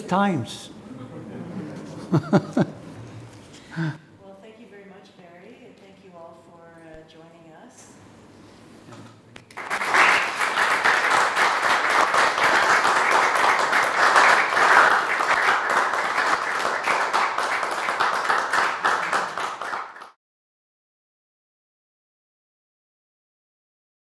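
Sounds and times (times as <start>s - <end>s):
audience applauding: 9.5s - 20.2s.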